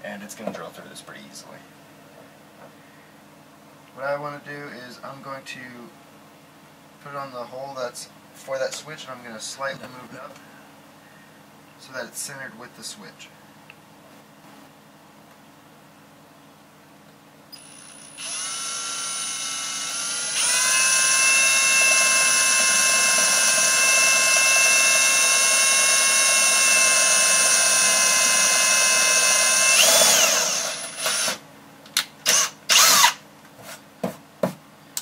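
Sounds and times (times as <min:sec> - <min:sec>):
cordless drill whining: 0:17.6 - 0:31.4, 0:32.2 - 0:33.2.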